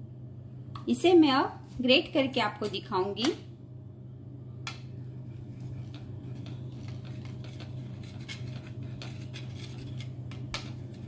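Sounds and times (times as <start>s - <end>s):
low hum: 3.4s - 11.0s
cheese grating on metal grater: 5.4s - 11.0s.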